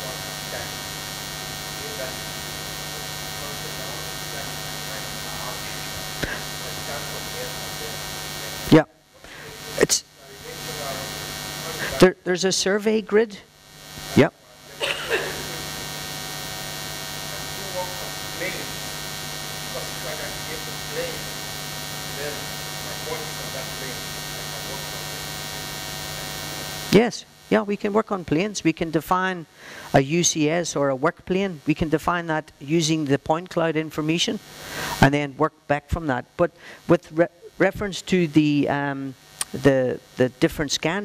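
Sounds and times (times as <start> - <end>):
electrical mains hum: 0.0 - 41.0.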